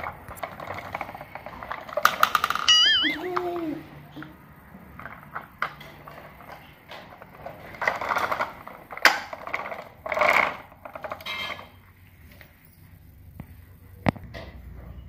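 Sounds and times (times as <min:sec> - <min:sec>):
metal toy rattling on tiled floor: 0:00.0 - 0:03.9, 0:05.0 - 0:11.8.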